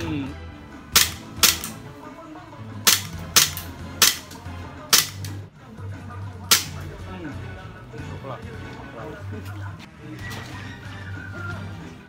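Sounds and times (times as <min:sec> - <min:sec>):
airsoft pistol shots: 0:01.0 - 0:01.8, 0:02.8 - 0:05.4, 0:06.5 - 0:06.8.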